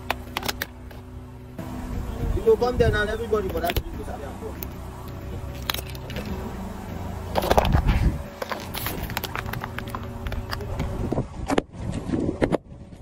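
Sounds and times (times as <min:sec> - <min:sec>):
plastic cups cracking under tyre: 0:00.0 - 0:00.8, 0:07.3 - 0:10.9
car engine rumble: 0:00.0 - 0:13.0
cartons crunching under tyre: 0:07.3 - 0:11.6.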